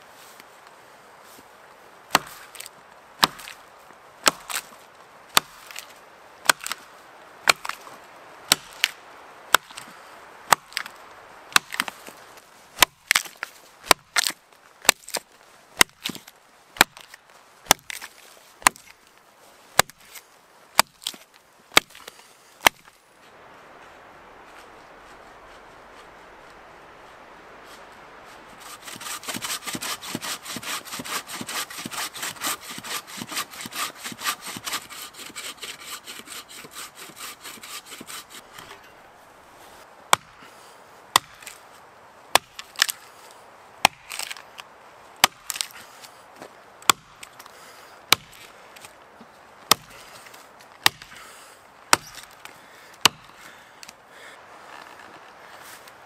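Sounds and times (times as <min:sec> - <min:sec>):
axe chopping trunk: 0:02.1 - 0:03.6, 0:04.2 - 0:06.8, 0:07.4 - 0:07.9, 0:08.5 - 0:09.9, 0:10.5 - 0:12.1, 0:12.8 - 0:19.0, 0:19.8 - 0:20.2, 0:20.8 - 0:22.9, 0:28.7 - 0:38.8, 0:40.1 - 0:40.4, 0:41.1 - 0:41.6, 0:42.3 - 0:43.0, 0:43.8 - 0:44.4, 0:45.2 - 0:45.8, 0:46.8 - 0:47.5, 0:48.1 - 0:48.9, 0:49.7 - 0:50.2, 0:50.8 - 0:51.3, 0:51.9 - 0:53.5
hand saw cutting wood: 0:28.6 - 0:38.9.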